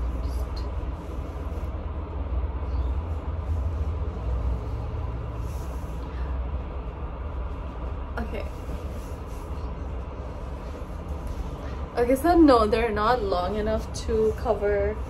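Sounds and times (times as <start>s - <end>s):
steady low rumble: 0.0s - 15.0s
scarf rustling: 7.4s - 15.0s.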